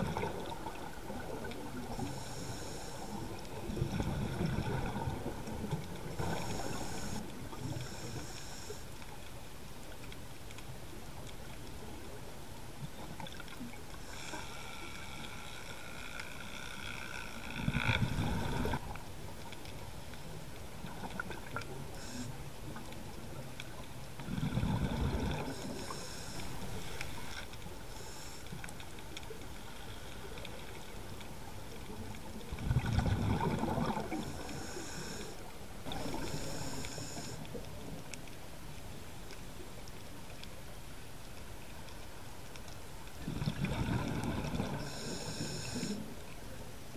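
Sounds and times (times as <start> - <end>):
exhaled air bubbling underwater: 0.0 - 8.8, 17.3 - 19.0, 20.6 - 27.3, 31.8 - 38.1, 43.1 - 46.4
regulator inhalation hiss: 1.9 - 3.4, 6.2 - 8.9, 21.9 - 22.4, 25.5 - 28.6, 34.3 - 35.4, 36.0 - 37.4, 44.8 - 46.1.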